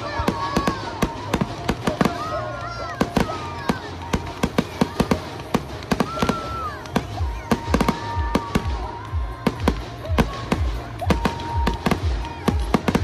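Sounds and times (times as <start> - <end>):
firework crackles: 0.0 - 13.0
fireworks bursting: 0.0 - 13.0.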